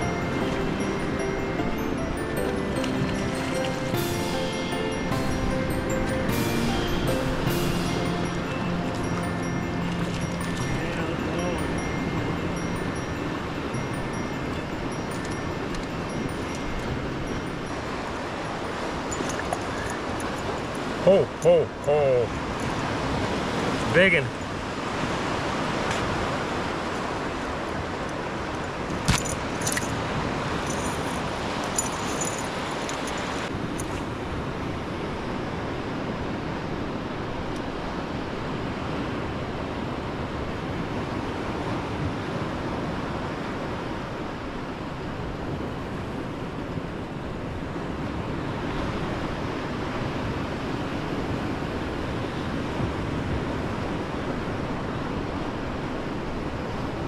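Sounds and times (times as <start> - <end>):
water noise: 0.0 - 56.8
wind: 0.0 - 57.0
light metallic jingling: 9.0 - 22.8, 28.4 - 34.0.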